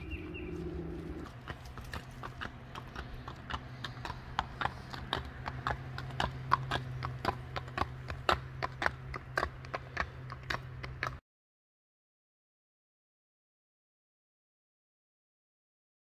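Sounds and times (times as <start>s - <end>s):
steady low hum: 0.0s - 11.0s
hooves clip-clopping on pavement: 0.0s - 11.2s.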